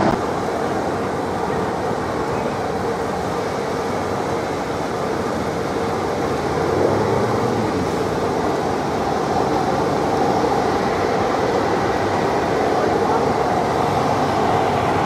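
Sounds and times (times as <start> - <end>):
motorcycles and cars passing: 5.9 - 11.1, 11.9 - 15.0.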